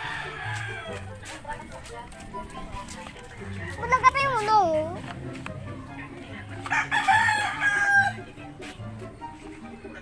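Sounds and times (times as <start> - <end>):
rooster crowing: 0.0 - 1.0, 6.7 - 8.3.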